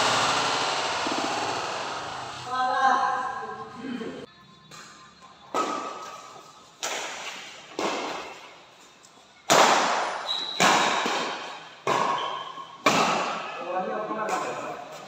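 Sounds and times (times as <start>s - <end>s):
badminton rackets hitting shuttlecock: 5.5s - 8.4s, 9.5s - 13.6s.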